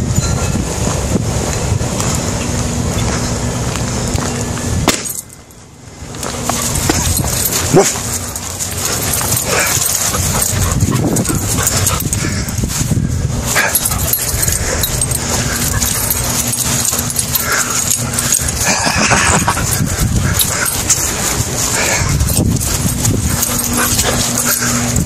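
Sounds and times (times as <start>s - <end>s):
handheld camera rumble and rustle: 0.0s - 25.0s
dog whining: 6.5s - 12.5s.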